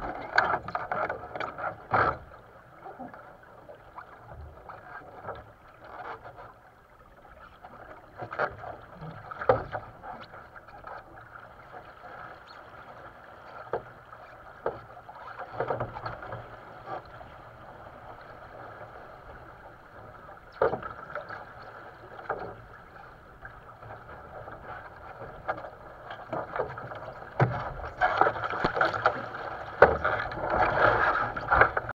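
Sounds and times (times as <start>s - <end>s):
water slapping against a hull: 0.0s - 31.9s
sharp splashes and knocks: 24.5s - 31.9s.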